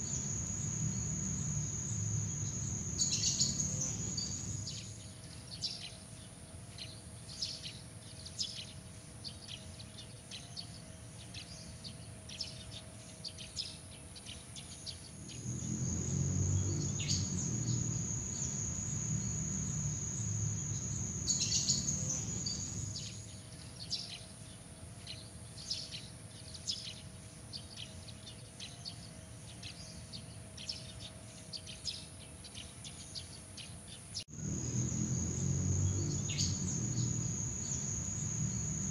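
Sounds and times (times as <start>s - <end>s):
insects trilling: 0.0s - 5.1s, 15.0s - 23.4s, 34.2s - 38.9s
short insect chirps: 0.0s - 5.1s, 15.0s - 23.4s, 34.3s - 38.9s.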